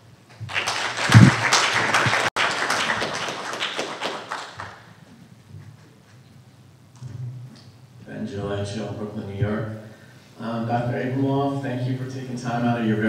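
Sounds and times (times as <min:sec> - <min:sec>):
audience applauding: 0:00.3 - 0:05.0.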